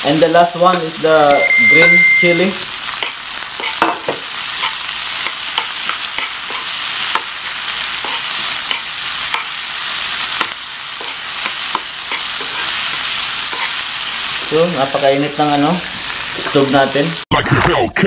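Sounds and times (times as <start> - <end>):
vegetables sizzling in hot oil: 0.0 - 17.3
spatula scraping a pan: 2.9 - 14.4.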